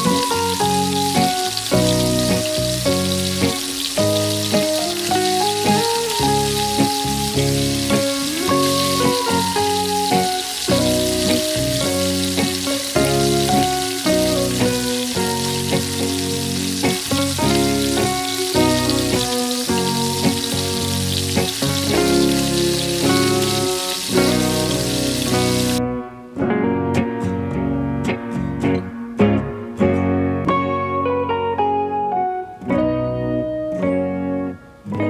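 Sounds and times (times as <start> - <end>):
chicken deep-frying in oil: 0.0 - 25.8
instrumental background music: 0.0 - 35.0.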